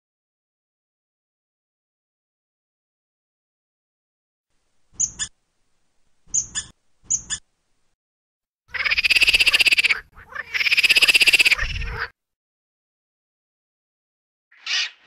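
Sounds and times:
squirrel chirping and chattering: 0:05.0 - 0:05.4, 0:06.3 - 0:07.5, 0:08.7 - 0:11.8.

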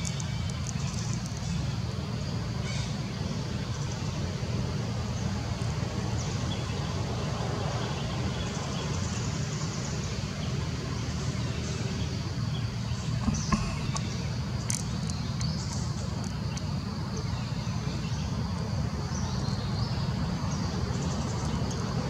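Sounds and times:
low outdoor rumble: 0:10.8 - 0:22.0.

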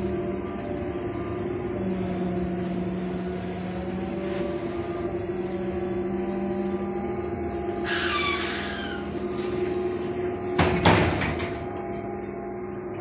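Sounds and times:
pneumatic doors hissing: 0:07.8 - 0:11.6
air hiss with falling whistles: 0:07.9 - 0:09.2.

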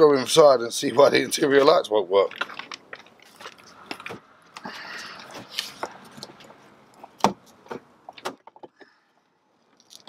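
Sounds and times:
plastic clicks and scraping: 0:01.6 - 0:09.0.

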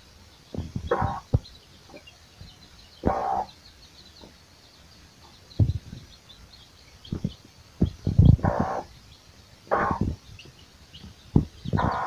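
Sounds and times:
chicks peeping: 0:00.2 - 0:12.0
hen clucking: 0:00.6 - 0:02.1, 0:03.0 - 0:03.6, 0:07.0 - 0:09.0, 0:09.6 - 0:12.0.

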